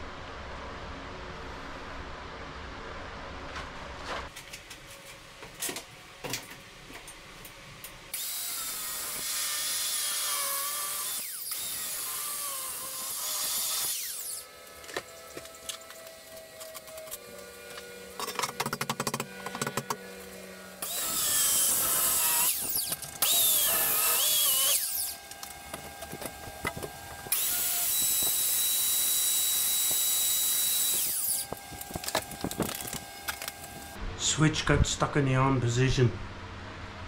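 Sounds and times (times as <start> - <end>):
power tool cutting cinder block: 8.1 - 34.0.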